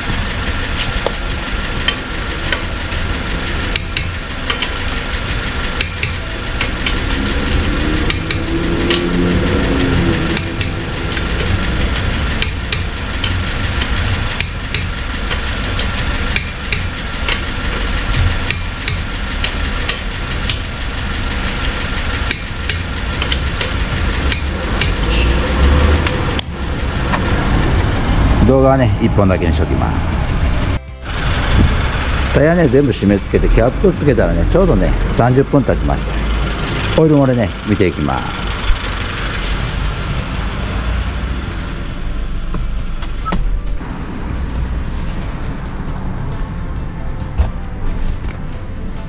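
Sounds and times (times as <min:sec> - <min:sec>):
air impact wrench hammering: 0:00.0 - 0:27.4.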